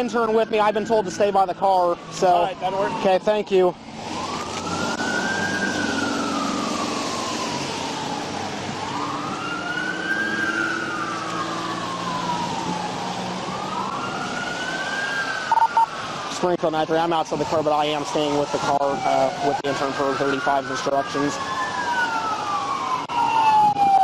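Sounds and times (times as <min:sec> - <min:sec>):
police sirens wailing: 0:00.0 - 0:24.0.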